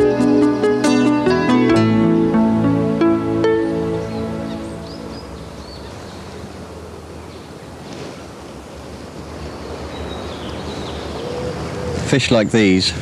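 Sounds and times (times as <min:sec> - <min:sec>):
music: 0:00.0 - 0:05.4.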